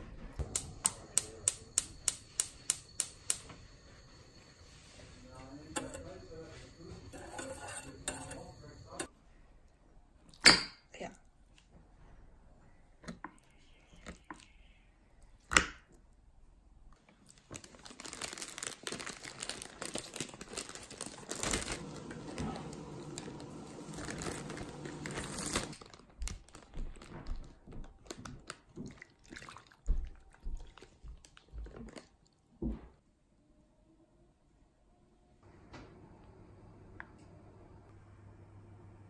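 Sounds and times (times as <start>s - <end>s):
plastic bag crinkling: 17.1s - 29.1s.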